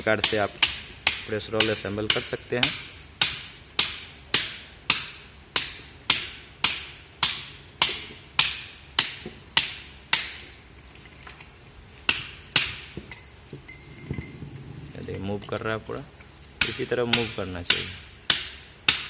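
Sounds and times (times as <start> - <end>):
hammer striking steel: 0.2 - 10.5, 16.6 - 19.0.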